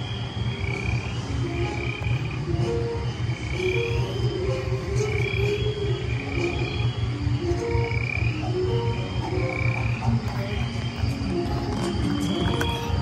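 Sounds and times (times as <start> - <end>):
slow held musical tones: 0.0 - 13.0
steady low rumble: 0.0 - 13.0
croaking night-creature effects: 3.4 - 6.8, 7.8 - 13.0.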